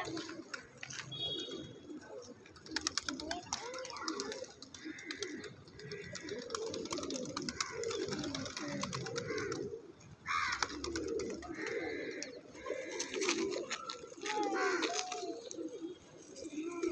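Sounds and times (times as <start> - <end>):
pigeons cooing: 0.0 - 16.9.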